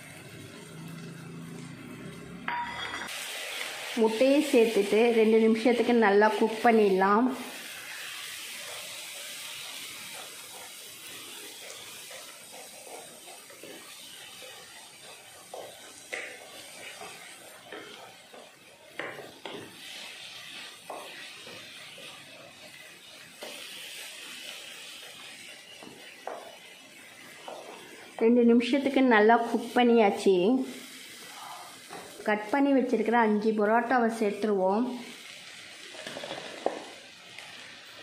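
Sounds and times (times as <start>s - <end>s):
food sizzling in pan: 0.0s - 38.0s
wooden spatula scraping pan: 35.9s - 36.9s.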